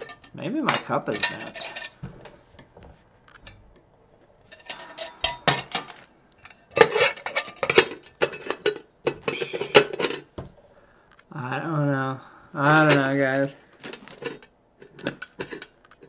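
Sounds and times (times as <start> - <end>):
metal lid clattering on cup: 0.0 - 2.0, 6.8 - 10.3, 13.8 - 15.8.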